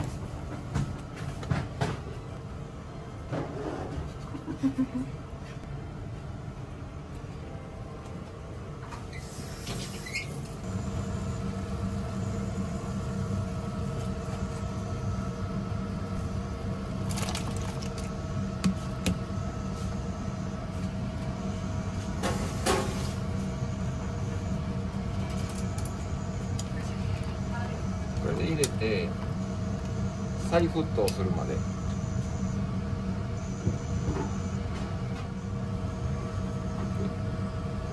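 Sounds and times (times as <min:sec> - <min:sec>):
water boiling in a pot: 0:16.2 - 0:19.0.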